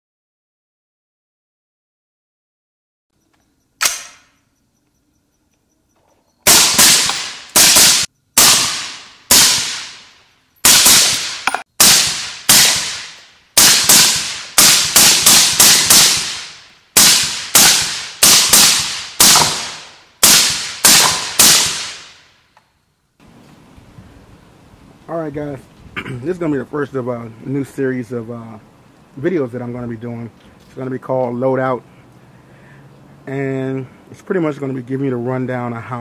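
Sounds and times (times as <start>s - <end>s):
sharp crack: 3.8s - 4.3s, 6.5s - 22.4s
suppressed rifle shots: 3.8s - 4.3s, 6.4s - 22.2s.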